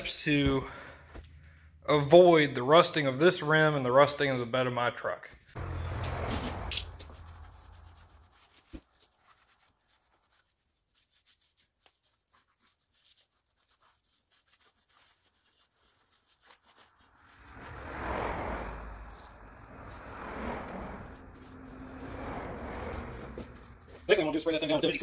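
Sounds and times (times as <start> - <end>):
rag rubbing wheel rim: 5.6 - 9.8, 12.6 - 25.0
rush of noise: 17.3 - 23.7.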